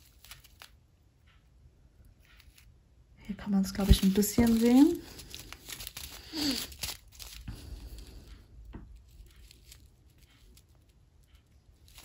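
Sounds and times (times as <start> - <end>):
plastic bag crinkling: 0.0 - 0.8, 3.5 - 8.2, 9.1 - 10.8.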